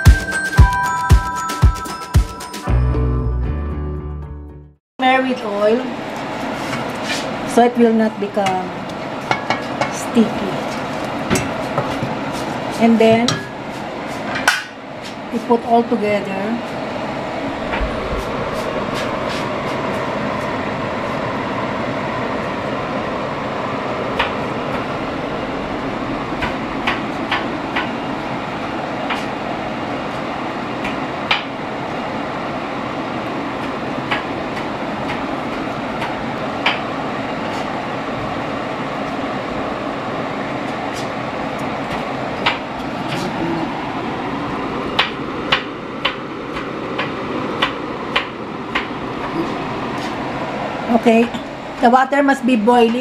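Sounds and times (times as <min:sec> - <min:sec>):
steady rushing noise: 0:16.4 - 0:52.5.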